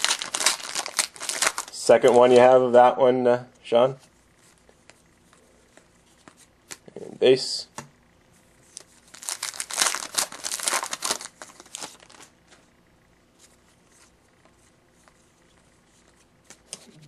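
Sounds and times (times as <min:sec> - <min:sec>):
wrapper crinkling and tearing: 0:00.0 - 0:02.4, 0:08.8 - 0:12.3.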